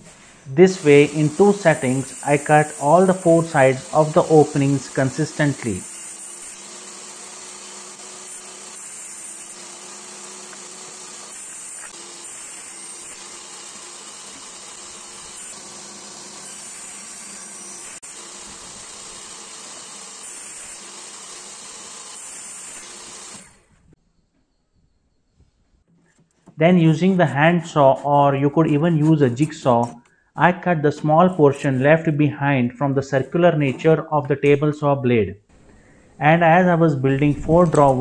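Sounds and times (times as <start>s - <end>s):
table saw cutting wood: 0.0s - 23.7s, 26.6s - 30.0s.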